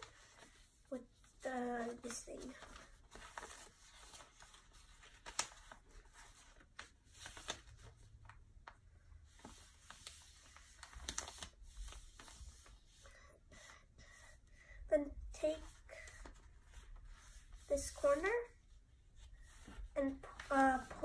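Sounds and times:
paper being folded: 0.0s - 14.3s, 15.0s - 21.0s.

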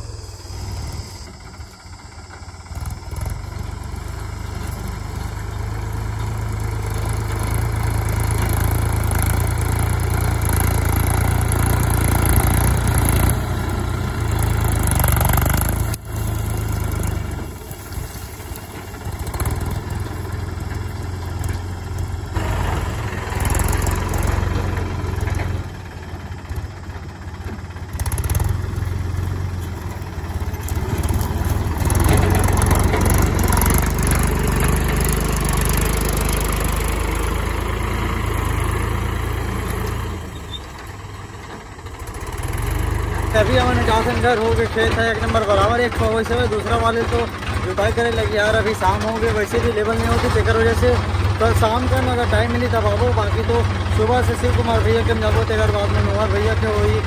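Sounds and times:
tractor diesel engine droning: 0.0s - 57.0s.

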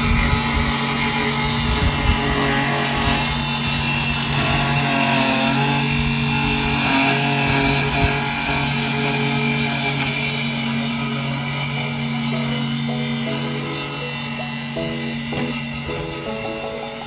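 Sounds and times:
electric lawn mower cutting grass: 0.0s - 17.0s
background music: 10.8s - 17.0s.

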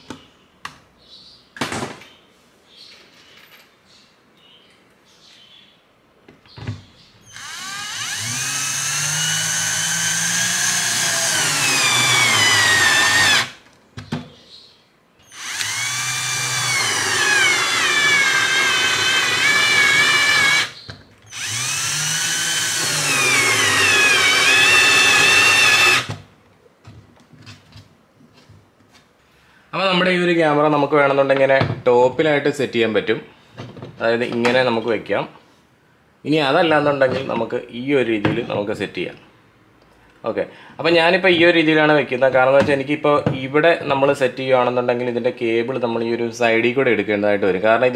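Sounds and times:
cordless drill whine: 7.3s - 13.6s, 15.2s - 26.1s.

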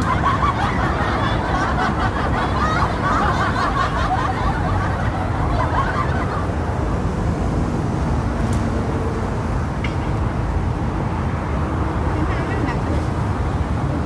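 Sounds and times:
people chattering and laughing: 0.0s - 6.7s
steady low city rumble: 0.0s - 14.0s.

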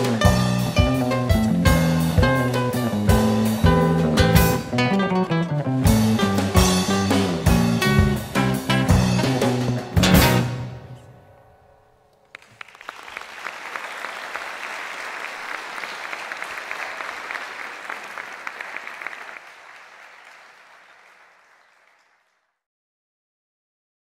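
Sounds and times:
audience applause: 12.2s - 22.6s.

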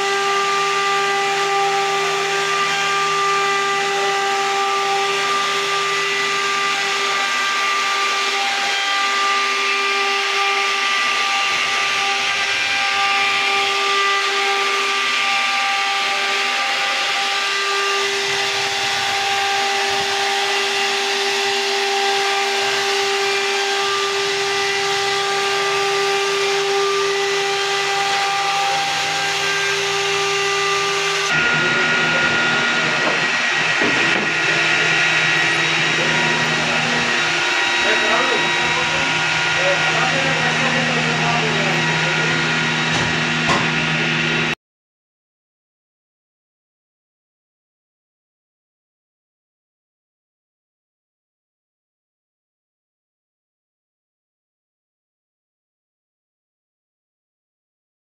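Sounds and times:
router spindle whining: 0.0s - 44.6s.

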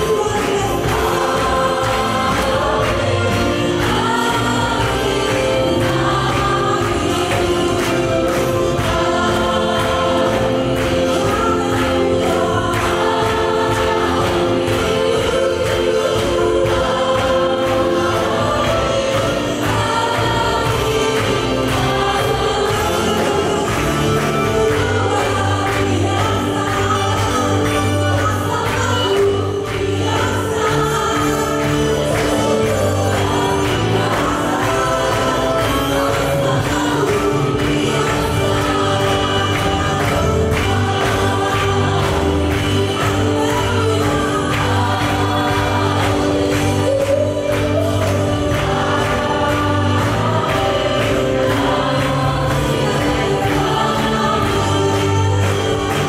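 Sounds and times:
worship band playing: 0.0s - 56.0s.

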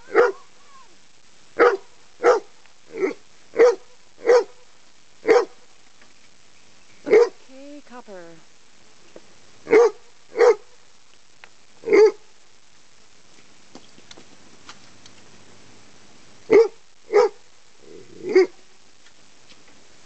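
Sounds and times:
dog barking: 0.0s - 0.5s, 1.6s - 4.6s, 5.2s - 5.6s, 7.0s - 7.4s, 9.6s - 10.7s, 11.8s - 12.3s, 16.5s - 17.4s, 18.2s - 18.6s.

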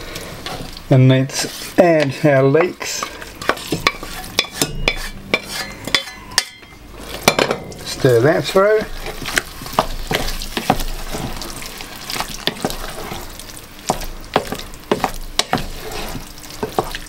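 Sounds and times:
wet squelching of thick sauce: 8.9s - 17.0s.

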